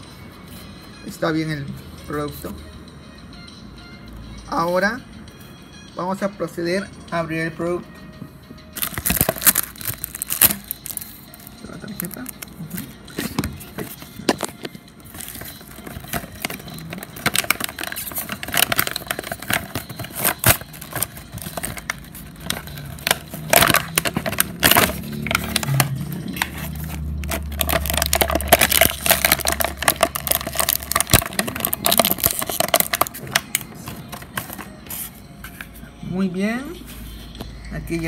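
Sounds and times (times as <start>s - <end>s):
plastic packaging crinkling: 8.8s - 25.8s, 26.4s - 34.7s.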